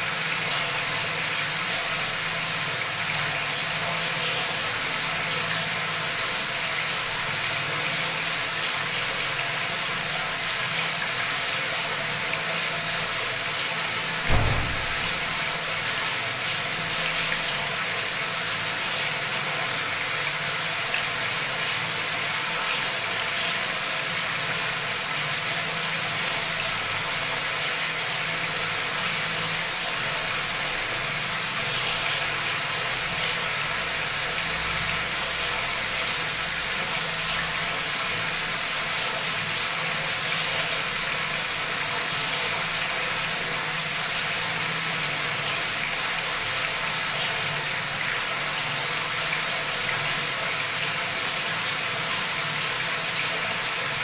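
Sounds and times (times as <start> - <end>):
tap water gushing into tub: 0.0 - 54.0.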